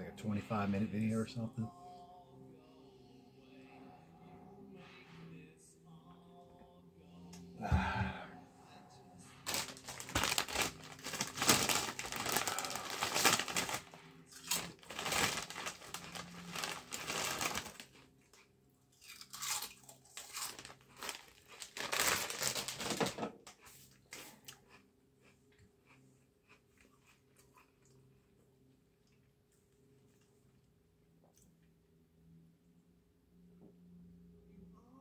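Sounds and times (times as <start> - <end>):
chip bag crinkling: 9.4 - 18.4, 19.0 - 23.2.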